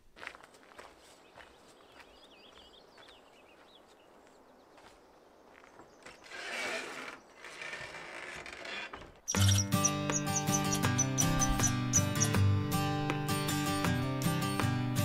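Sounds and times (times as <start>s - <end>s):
faint birdsong: 0.4s - 7.9s, 8.7s - 13.6s
creaking scraping noise: 6.2s - 9.7s
music: 9.3s - 15.0s.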